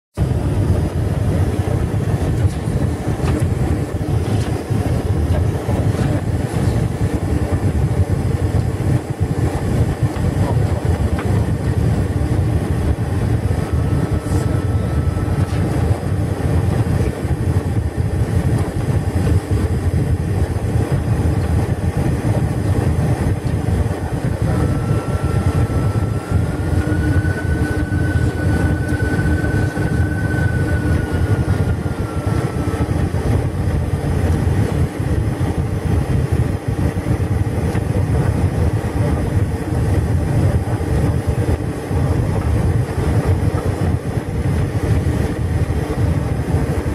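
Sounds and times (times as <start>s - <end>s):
aircraft engines rumbling: 0.1s - 46.9s
faint high whine: 8.9s - 20.1s, 20.9s - 34.9s.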